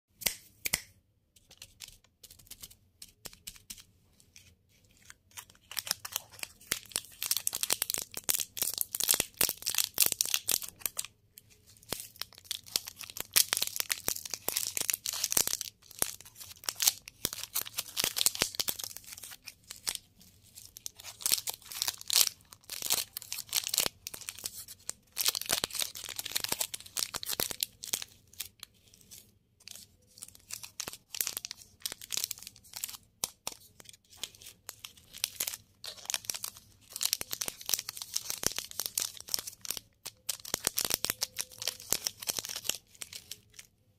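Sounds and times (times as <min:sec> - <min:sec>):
plastic wrappers crinkling: 0:05.0 - 0:43.7.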